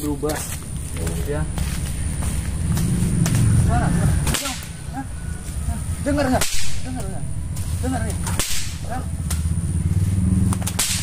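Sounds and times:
whip cracking: 0:04.2 - 0:04.8, 0:06.3 - 0:09.6, 0:10.4 - 0:11.0.

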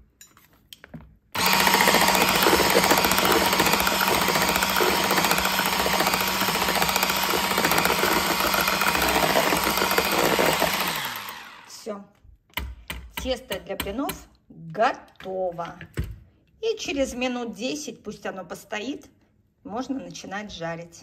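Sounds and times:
electric blender humming: 0:01.4 - 0:11.9.

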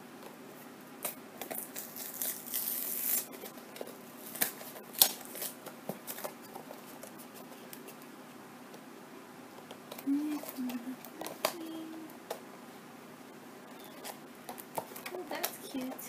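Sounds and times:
cardboard tearing: 0:01.4 - 0:07.9.

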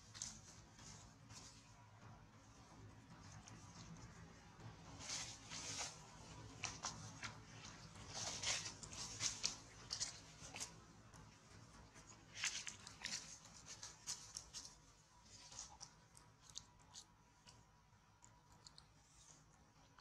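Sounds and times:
monkey crunching dried corn: 0:05.1 - 0:17.6, 0:18.2 - 0:19.3.

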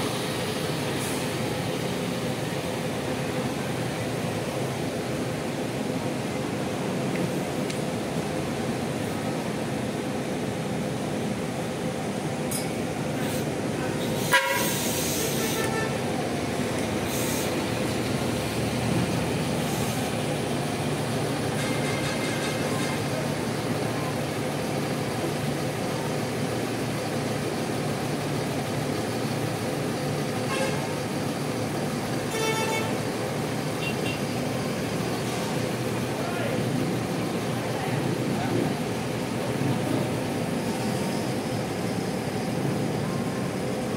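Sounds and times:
diesel bus engines running: 0:00.0 - 0:43.9
short bursts of hiss: 0:13.2 - 0:15.7, 0:17.1 - 0:17.6.

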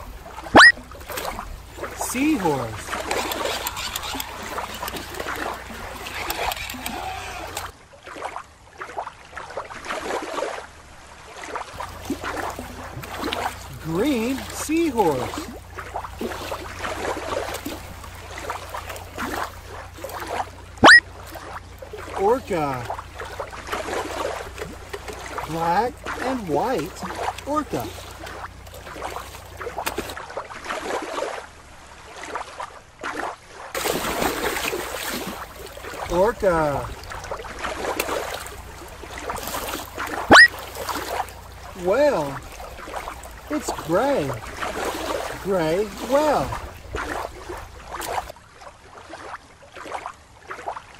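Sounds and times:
water splashing and gurgling: 0:00.0 - 0:50.9.

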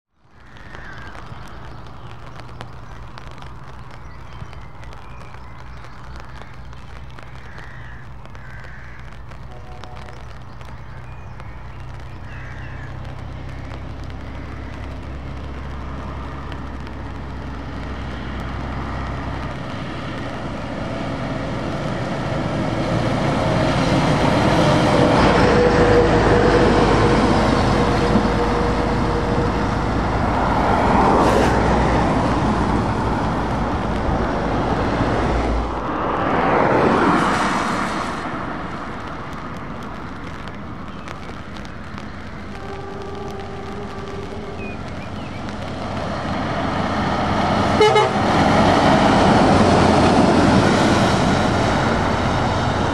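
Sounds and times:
tyres on wet road: 0:00.1 - 0:52.9
diesel truck engine: 0:12.8 - 0:52.9.

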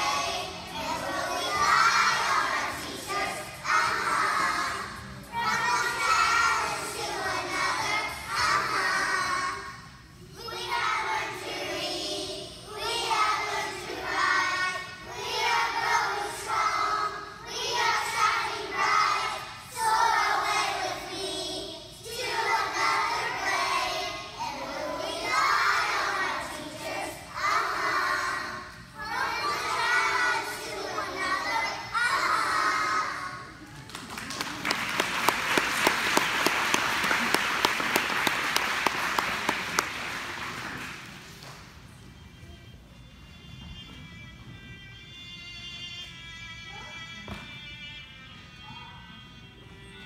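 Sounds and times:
children singing: 0:00.0 - 0:33.6.

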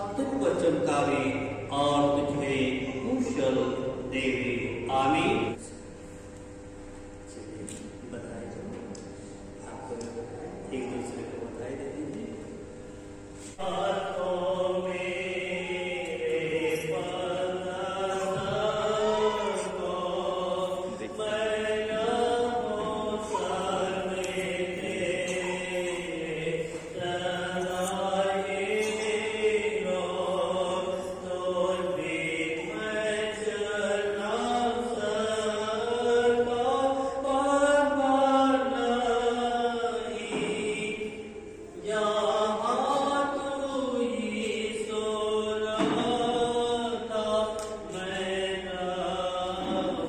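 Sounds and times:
chant-like singing with music: 0:13.4 - 0:50.0.

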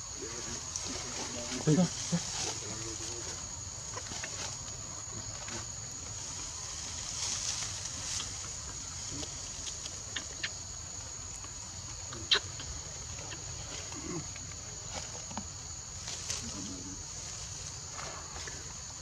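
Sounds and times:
high insect drone: 0:00.0 - 0:19.0
dry leaves crackling: 0:00.3 - 0:10.4.

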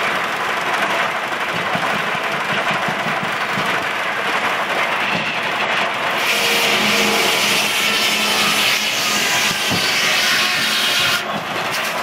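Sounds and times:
circular saw blade cutting log: 0:06.2 - 0:12.0.

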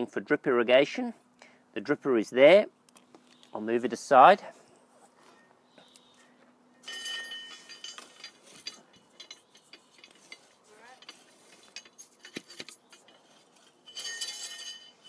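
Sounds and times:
soil auger grinding through earth: 0:06.8 - 0:15.0.

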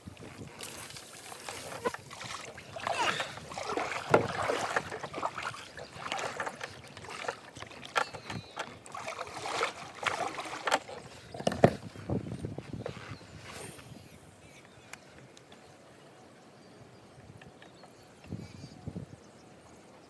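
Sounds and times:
paddle splashing in water: 0:00.2 - 0:12.9.

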